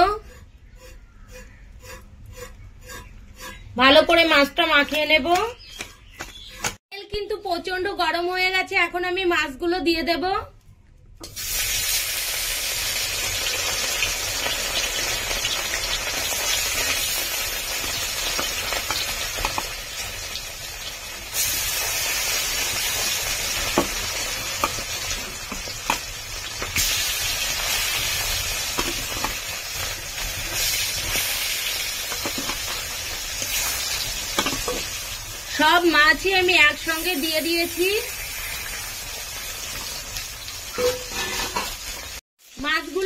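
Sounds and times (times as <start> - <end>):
fish sizzling in hot oil: 11.3 - 43.0.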